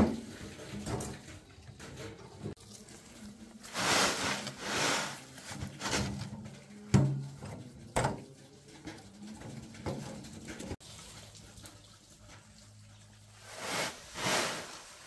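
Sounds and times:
soil and stones sliding from wheelbarrow: 2.8 - 6.4, 13.4 - 15.0.

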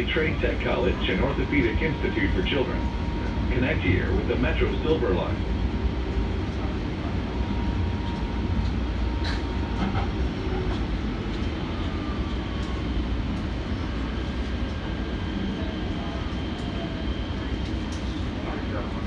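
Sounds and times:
tram wheels rumbling: 0.0 - 19.0.

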